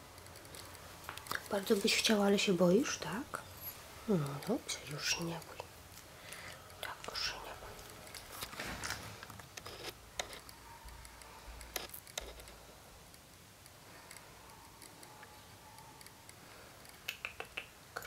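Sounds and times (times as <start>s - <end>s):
faint sharp mouth clicks: 16.9s - 18.0s.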